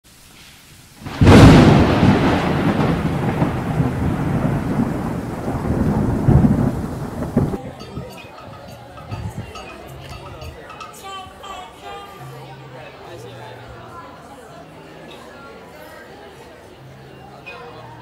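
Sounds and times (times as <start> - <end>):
thunder crack: 1.0 - 7.8
thunder rolling rumble: 1.0 - 7.9.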